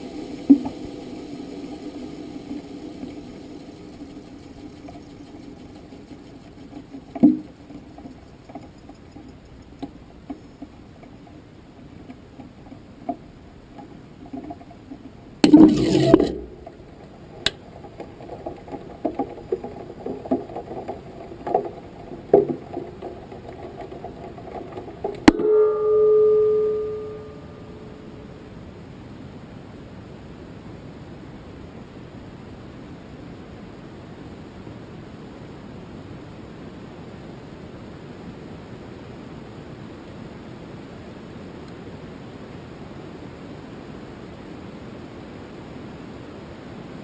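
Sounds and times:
steady low hum: 0:00.0 - 0:47.0
knocks and rattles: 0:13.8 - 0:25.9
held tone: 0:15.4 - 0:16.9, 0:25.1 - 0:28.5.

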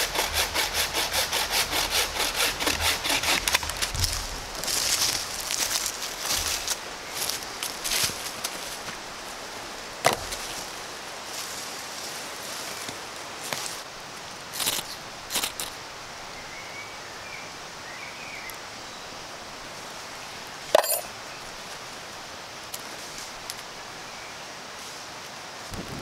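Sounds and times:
steady background hiss: 0:00.0 - 0:26.0
firewood dropped with thud: 0:10.0 - 0:10.4
faint bird chirping: 0:16.3 - 0:19.2.

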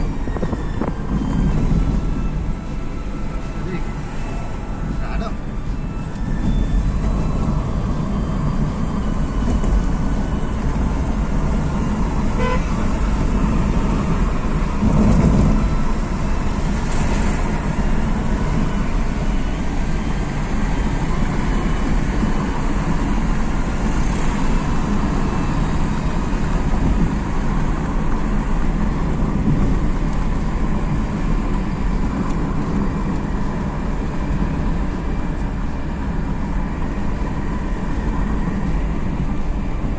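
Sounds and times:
car engine and road noise: 0:00.0 - 0:39.9
car horn tooting: 0:12.2 - 0:13.0.

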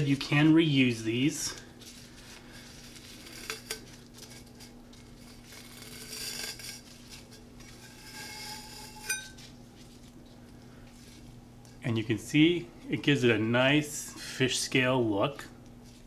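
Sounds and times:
mesh rustling over metal cup: 0:01.0 - 0:11.4
short metallic ring: 0:08.4 - 0:09.4.

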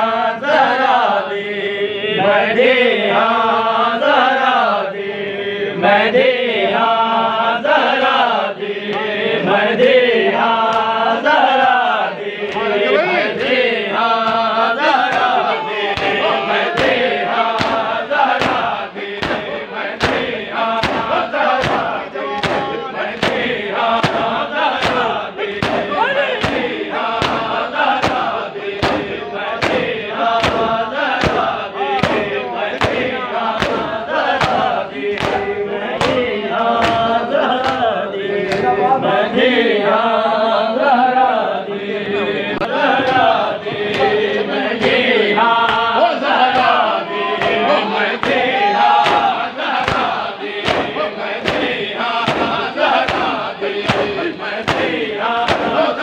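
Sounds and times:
men chanting a lament: 0:00.0 - 0:56.0
hands beating on chests: 0:14.2 - 0:38.8, 0:43.0 - 0:45.9, 0:46.5 - 0:56.0.

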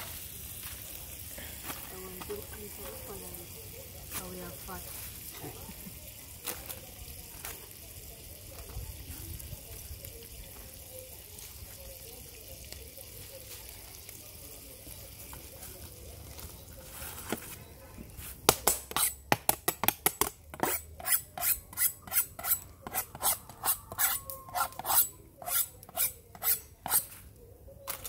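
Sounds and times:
knife scraping fish scales: 0:18.9 - 0:19.2, 0:20.6 - 0:27.2.

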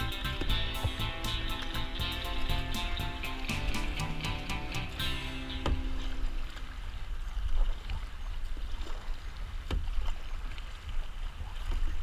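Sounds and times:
paddle strokes splashing: 0:00.0 - 0:12.0
water sloshing against hull: 0:00.0 - 0:12.0.

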